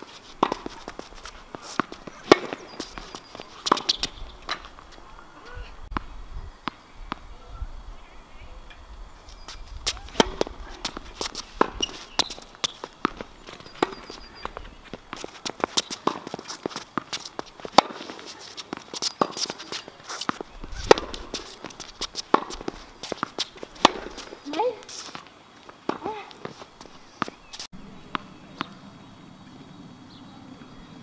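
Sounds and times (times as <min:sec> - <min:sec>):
quick footsteps: 0:00.0 - 0:05.1, 0:09.3 - 0:27.7
racket striking tennis ball: 0:00.0 - 0:05.1, 0:09.8 - 0:28.8
ball bouncing on hard court: 0:00.4 - 0:04.7, 0:09.8 - 0:25.2.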